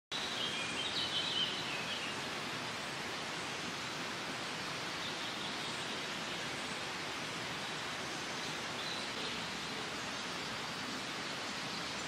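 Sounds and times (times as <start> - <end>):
bird chirping: 0.1 - 2.2, 8.1 - 12.0
steady forest rushing noise: 0.1 - 12.0.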